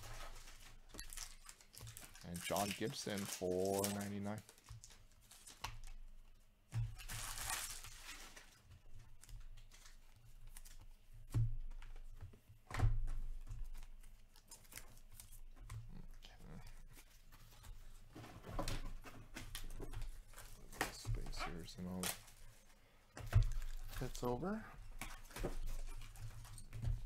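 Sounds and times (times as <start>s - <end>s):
trading cards rustling: 0.0s - 5.9s, 19.3s - 27.0s.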